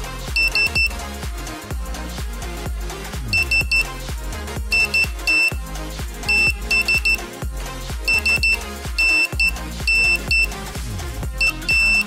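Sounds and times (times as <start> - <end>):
music with heavy bass beat: 0.0 - 12.0
buzzer beeping morse code: 0.4 - 1.0, 3.3 - 3.9, 4.7 - 5.6, 6.2 - 7.3, 8.0 - 10.6, 11.4 - 12.0.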